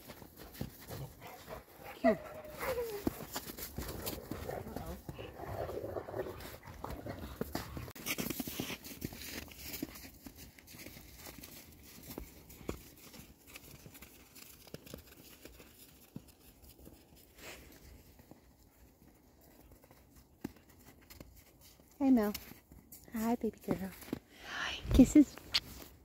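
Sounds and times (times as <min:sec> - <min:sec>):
footsteps crunching in snow: 0:02.3 - 0:18.4.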